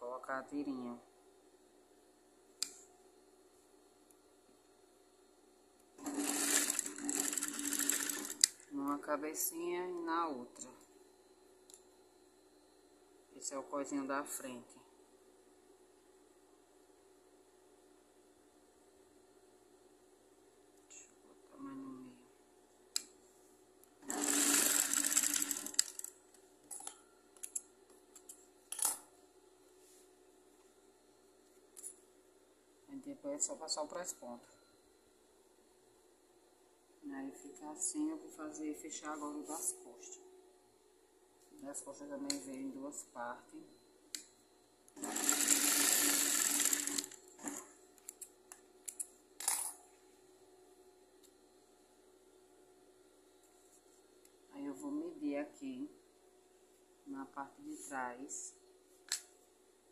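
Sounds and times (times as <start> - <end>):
sewing machine running: 6.0 - 8.5, 24.0 - 26.1, 45.0 - 47.7.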